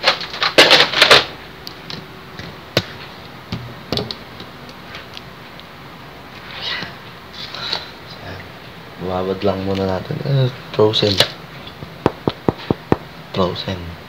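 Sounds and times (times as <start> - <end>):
knocks and clicks of items handled: 12.0 - 13.1.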